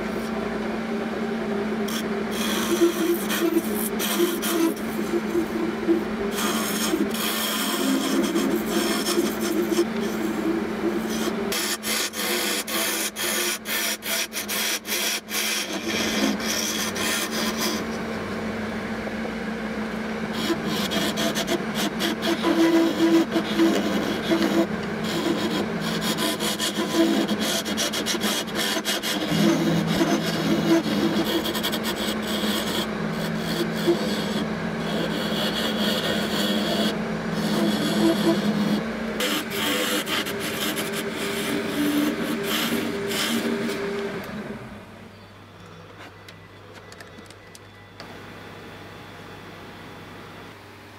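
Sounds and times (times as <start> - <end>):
wood lathe humming: 0.0 - 45.9
turning tool scraping rasp: 1.9 - 18.0, 20.3 - 44.4.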